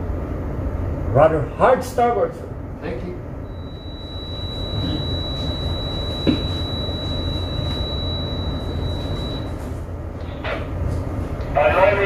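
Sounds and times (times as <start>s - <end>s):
low steady hum: 0.0s - 12.0s
high-pitched electronic tone: 3.5s - 9.6s.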